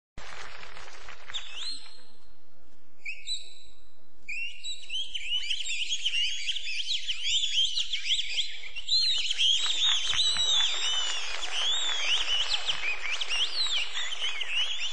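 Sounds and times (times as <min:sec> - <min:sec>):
bird-like whistled chirping: 0:03.0 - 0:14.9.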